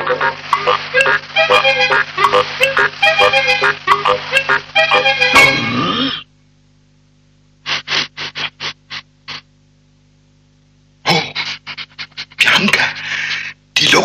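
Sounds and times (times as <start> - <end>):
music snatch: 0.0 - 6.0
crocodile sniffing: 7.6 - 9.4.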